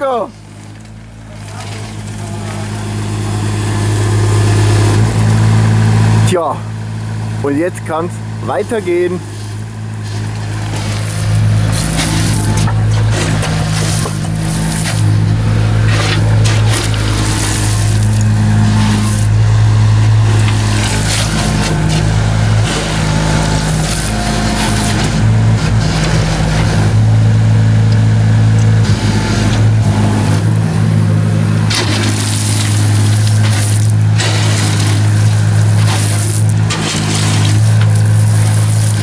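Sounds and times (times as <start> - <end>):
bucket scraping gravel: 0.0 - 3.1, 8.4 - 27.0, 31.6 - 39.0
mini excavator engine running: 0.0 - 39.0.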